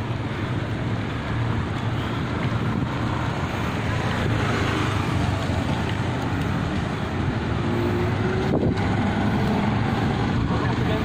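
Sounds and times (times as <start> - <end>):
bicycle road noise: 0.0 - 11.0
wind rush on microphone: 0.0 - 11.0.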